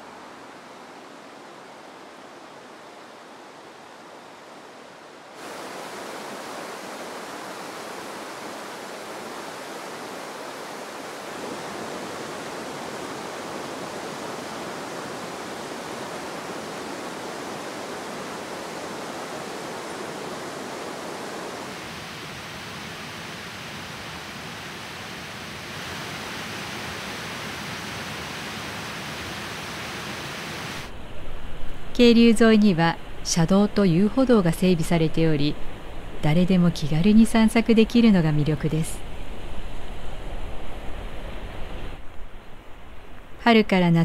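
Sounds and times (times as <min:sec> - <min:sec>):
stream water rushing over rocks: 0:05.0 - 0:30.9.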